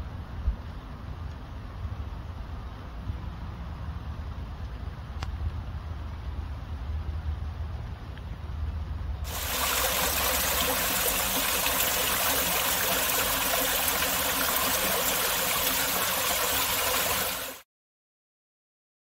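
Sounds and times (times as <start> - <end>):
waterfall splashing: 9.3 - 17.6.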